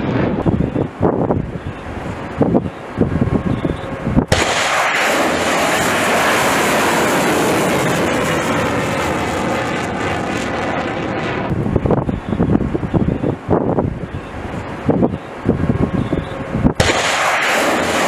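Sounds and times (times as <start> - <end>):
rocket motor roaring: 4.2 - 13.0, 16.6 - 18.0.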